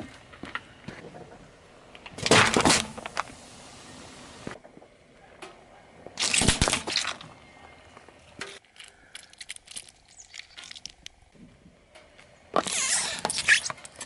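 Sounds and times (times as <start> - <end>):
toy crushed crackling and popping: 6.2 - 7.3, 8.6 - 11.2.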